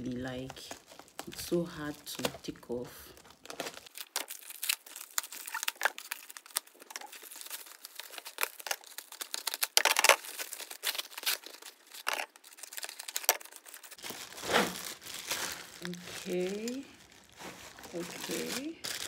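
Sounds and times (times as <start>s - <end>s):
packaging crackling and rustling: 0.0s - 19.0s
packaging ripping: 3.2s - 19.0s.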